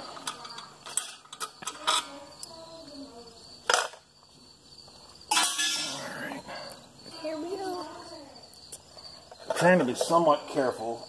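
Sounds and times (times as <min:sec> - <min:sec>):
metal clinks and scrapes: 0:00.2 - 0:02.5, 0:05.3 - 0:06.8, 0:08.9 - 0:10.4.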